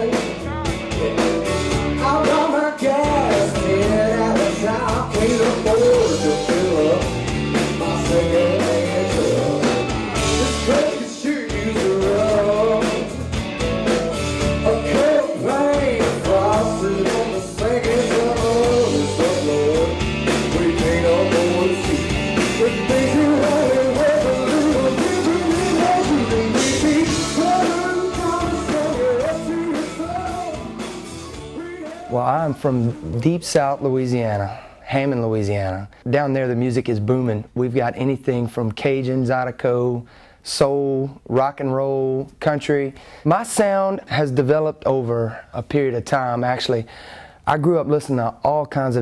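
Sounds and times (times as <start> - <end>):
male lead vocal: 0.0 - 13.3, 14.4 - 33.4
live rock band: 0.0 - 33.1.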